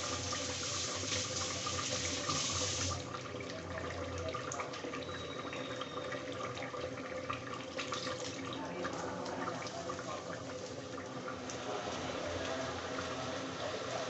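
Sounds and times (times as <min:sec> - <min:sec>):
meat bubbling in a pot: 0:03.0 - 0:14.0.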